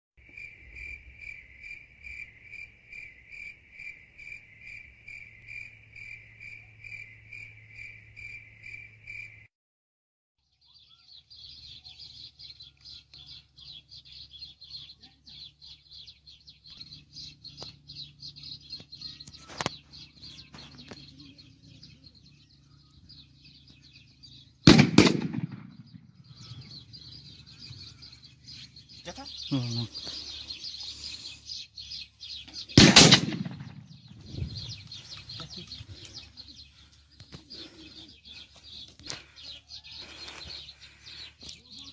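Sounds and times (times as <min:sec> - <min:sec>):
cricket chirping: 0:00.2 - 0:09.5
gunshot: 0:24.6 - 0:26.1, 0:32.7 - 0:34.1.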